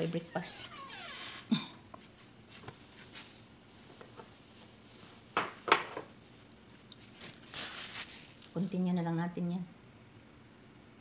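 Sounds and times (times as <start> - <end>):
knocks of household items handled: 5.4 - 6.1.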